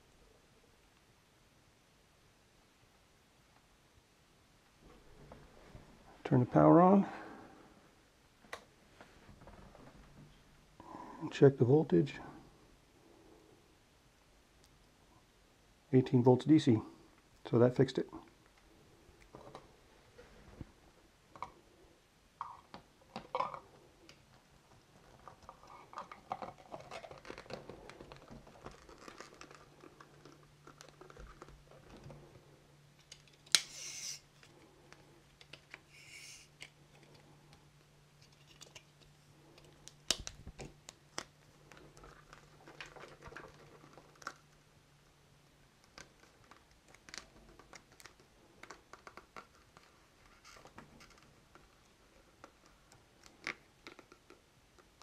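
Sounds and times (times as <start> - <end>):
faint low hum: 0.0 - 55.0
plastic snapping: 38.4 - 41.8.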